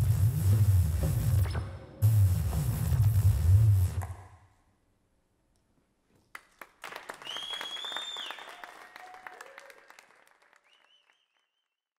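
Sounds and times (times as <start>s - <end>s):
audience clapping: 6.2s - 11.8s
whistle: 7.2s - 8.8s, 10.6s - 11.8s
person cheering: 8.2s - 10.0s.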